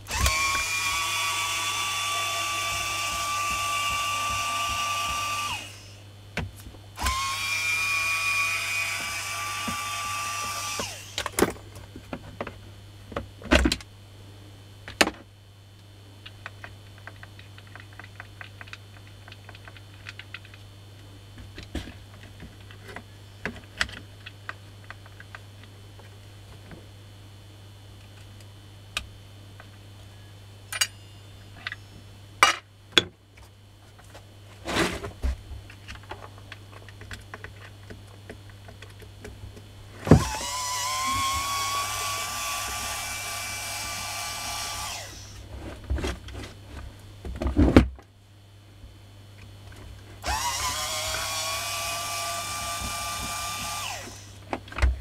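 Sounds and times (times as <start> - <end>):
electric motor whining: 0.0 - 6.0, 7.0 - 11.3, 40.1 - 45.4, 50.2 - 54.4
plastic parts clicking and rattling: 16.2 - 20.7, 35.7 - 39.4.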